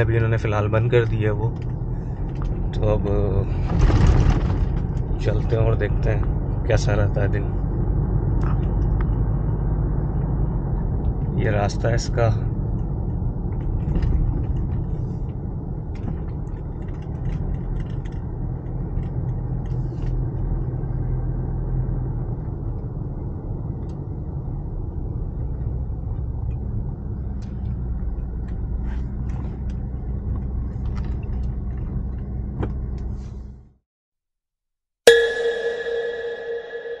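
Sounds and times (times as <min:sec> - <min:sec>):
car engine and tyre rumble: 0:00.0 - 0:33.8
light clicks and rattles: 0:12.7 - 0:20.4.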